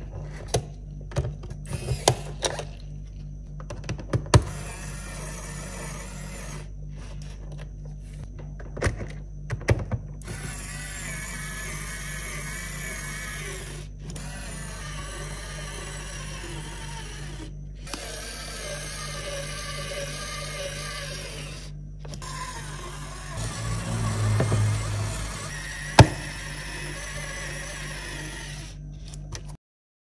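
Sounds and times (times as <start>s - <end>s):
electric screwdriver whirring: 10.2s - 28.8s.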